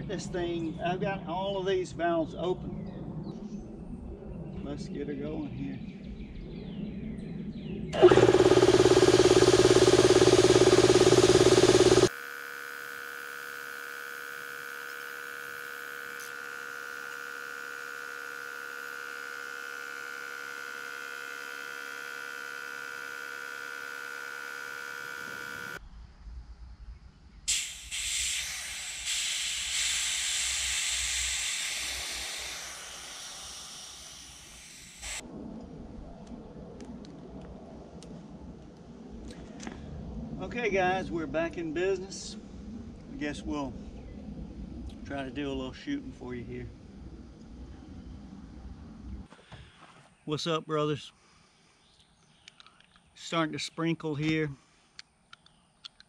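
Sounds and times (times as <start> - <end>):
air compressor running: 8.0 - 25.8, 27.5 - 35.2
air hissing: 27.5 - 35.2.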